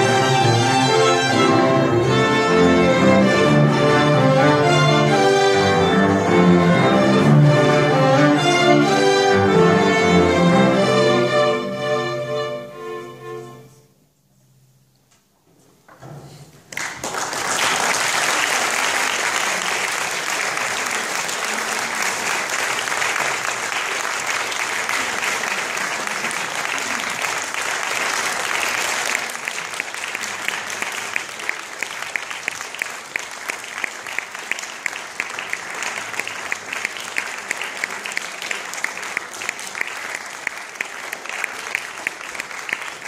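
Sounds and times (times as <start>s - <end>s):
audience applauding: 16.7s - 43.0s
rhythmic clapping in unison: 16.7s - 43.0s.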